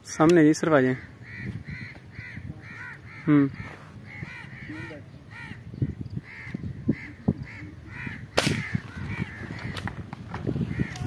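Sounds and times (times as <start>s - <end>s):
crows cawing: 0.0s - 11.0s
air rifle shot: 8.3s - 8.7s.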